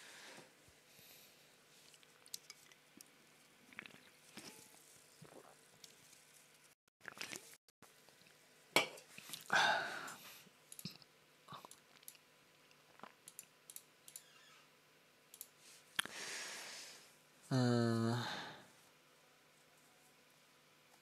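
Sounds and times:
small sharp clicks: 13.2s - 14.4s, 15.3s - 16.1s
low voiced hum: 17.4s - 18.8s.

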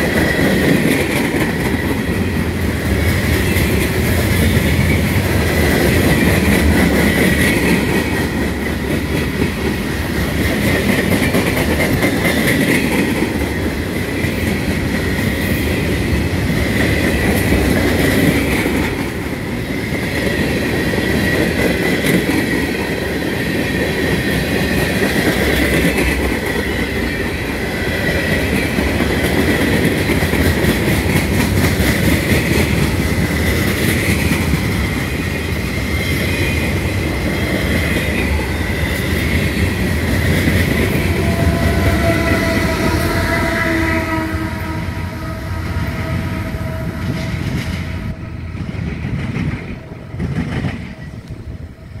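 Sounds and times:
train wheels clicking over rail joints: 0.0s - 43.4s, 46.9s - 51.6s
heavy train rumble: 0.0s - 52.0s.

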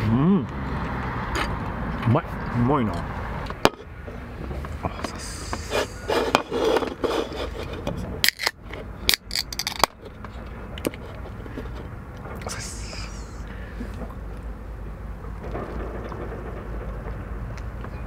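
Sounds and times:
can pull-tab cracks: 8.2s - 9.9s.

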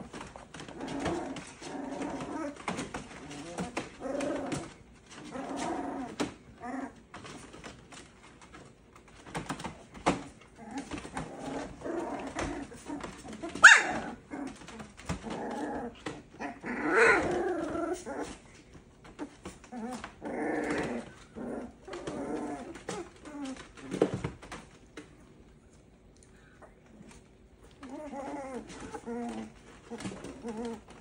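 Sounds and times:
puppies growling and yipping: 0.0s - 25.1s, 26.6s - 31.0s
puppy yelp: 13.4s - 14.3s.

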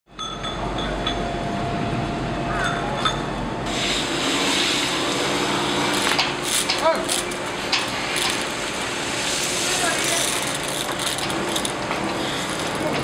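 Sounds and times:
boat machinery rumble: 5.0s - 13.0s
unloading hiss: 5.9s - 13.0s.

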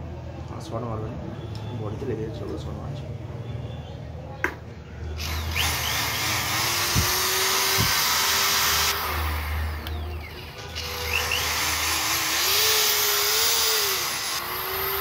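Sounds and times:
electric screwdriver motor whine: 5.2s - 15.0s.

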